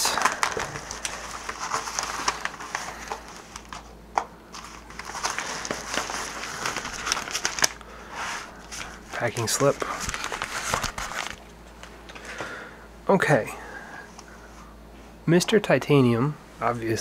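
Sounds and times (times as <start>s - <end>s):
padded mailer rustling: 0.0s - 12.4s.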